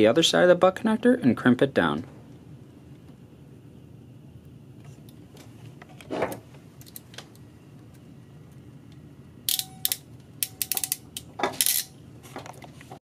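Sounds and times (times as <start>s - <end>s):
crimping tool clicking: 9.5s - 11.9s.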